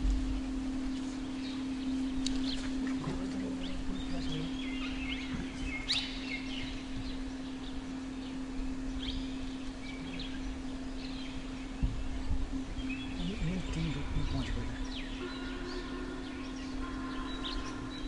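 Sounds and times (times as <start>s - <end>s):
steady low hum: 0.0s - 18.0s
high bird chirps: 9.0s - 18.0s.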